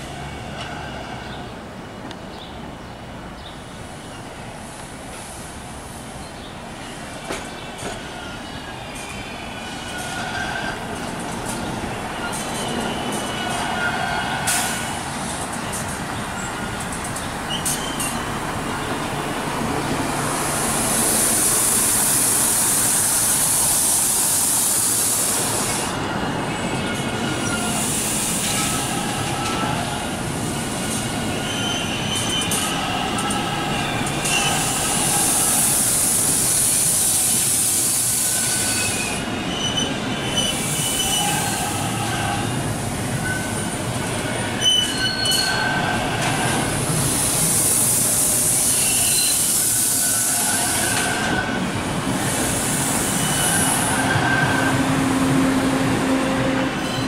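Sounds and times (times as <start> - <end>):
train rumbling on rails: 0.0 - 57.0
train wheels squealing: 6.8 - 15.0, 15.6 - 18.8, 20.9 - 46.6, 47.2 - 57.0.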